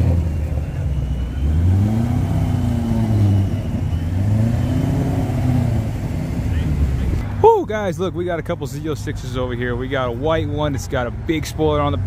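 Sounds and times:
car engine revving: 0.0s - 7.4s.

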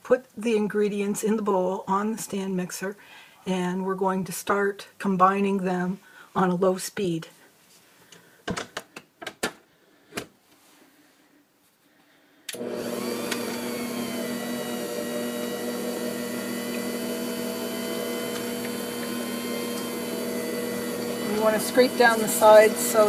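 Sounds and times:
stand mixer motor hum: 12.6s - 23.0s.

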